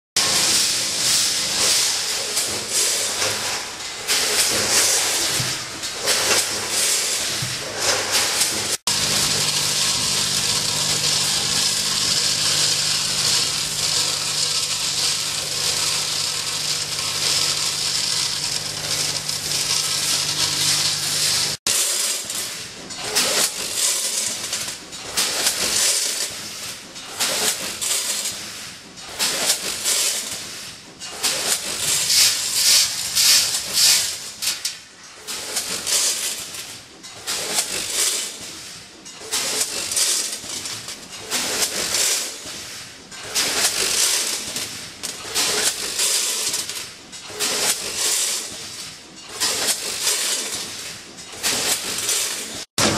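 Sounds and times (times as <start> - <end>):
weighing machine vibrating hum: 0.2 - 30.3
screws rattling along feed tray: 39.3 - 52.7.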